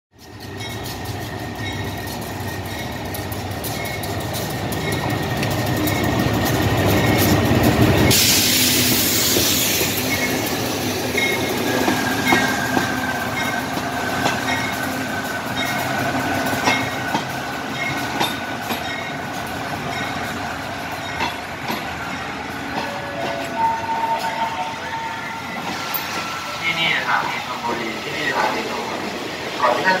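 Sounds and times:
locomotive bell ringing: 0:00.2 - 0:08.2, 0:09.9 - 0:26.2
high brake squeal: 0:08.0 - 0:10.6
burst of hissing: 0:08.1 - 0:10.1.

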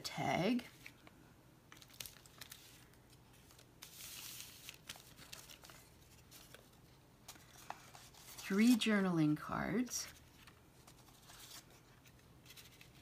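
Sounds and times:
paper rustle: 0:01.7 - 0:09.0, 0:10.0 - 0:13.0.

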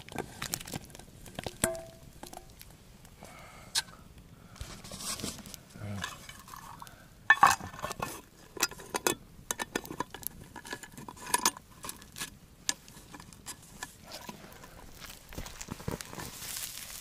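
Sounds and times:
metal lid clinking on pot: 0:01.6 - 0:02.4, 0:07.3 - 0:12.0.

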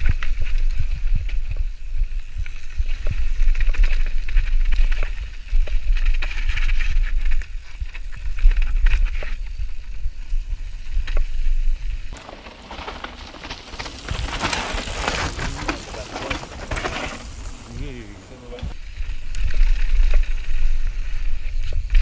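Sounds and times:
wind rumble on microphone: 0:00.0 - 0:12.2, 0:14.0 - 0:22.0
tyres on loose gravel: 0:00.0 - 0:22.0
bike rattling and knocking: 0:12.2 - 0:18.7.

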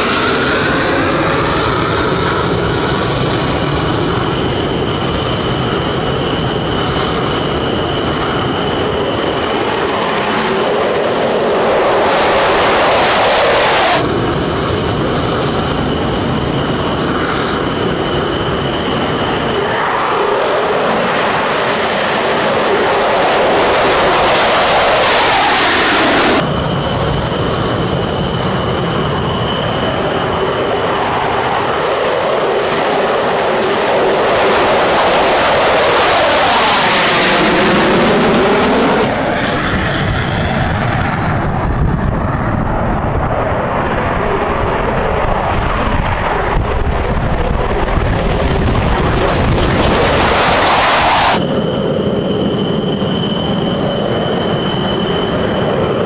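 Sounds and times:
high engine whine: 0:00.0 - 0:56.0
jet engine rushing: 0:00.0 - 0:56.0.

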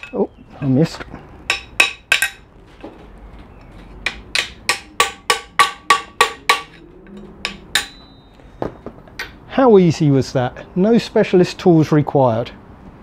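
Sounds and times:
hammer tapping metal drift: 0:01.5 - 0:02.5, 0:04.0 - 0:08.4.

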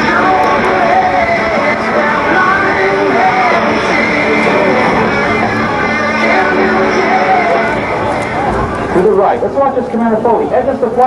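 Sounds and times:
music over loudspeakers: 0:00.0 - 0:11.0.

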